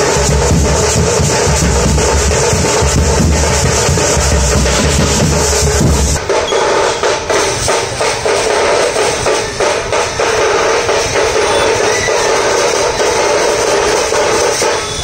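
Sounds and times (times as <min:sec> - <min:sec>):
deep booming bass drums: 0:00.0 - 0:06.2
drum band playing fast rhythm: 0:00.0 - 0:15.0.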